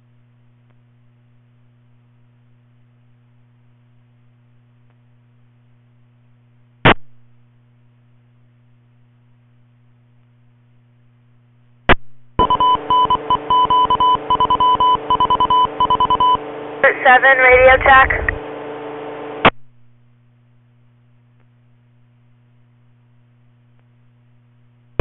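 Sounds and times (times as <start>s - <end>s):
low steady hum: 0.0s - 25.0s
radio transmission clicks: 11.9s - 18.4s
chopped beeping tones over static: 12.4s - 18.4s.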